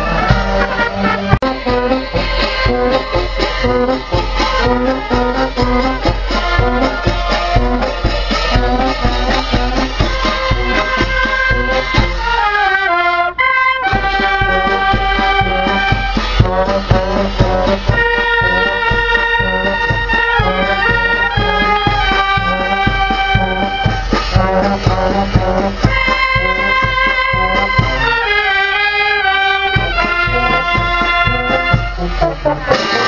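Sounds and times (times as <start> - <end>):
bass drum and cymbal beats: 0.0 - 12.7, 13.8 - 33.0
clarinets and brass playing march: 0.0 - 33.0.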